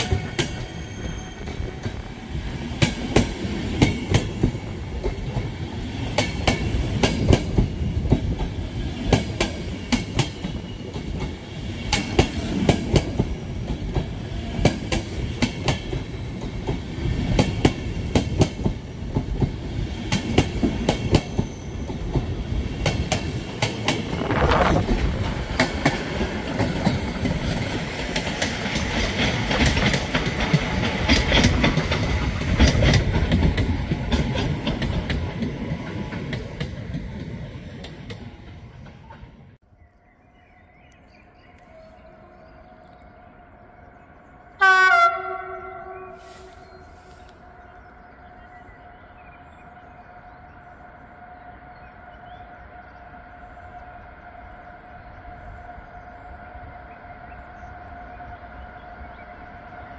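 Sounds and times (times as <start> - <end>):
train wheels rumbling on rail: 0.0 - 39.6
wheels clacking over rail joints: 2.7 - 39.6.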